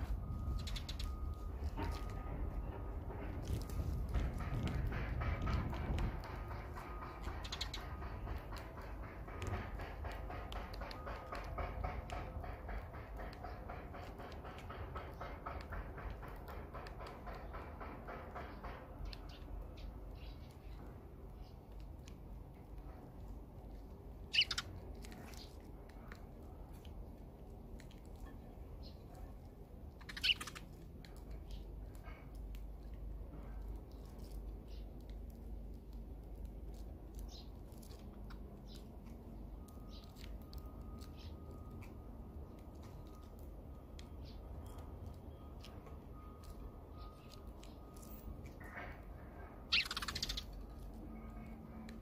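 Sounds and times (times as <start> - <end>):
sparrows chirping: 0.0 - 2.8, 3.4 - 14.4, 18.4 - 21.8, 24.2 - 26.2, 28.2 - 32.3, 34.0 - 35.0, 36.7 - 43.4, 44.0 - 48.7, 49.6 - 51.6
faint low rumble: 0.0 - 9.0
sparrow beak clicks: 24.3 - 24.7, 30.0 - 30.7, 49.7 - 50.5.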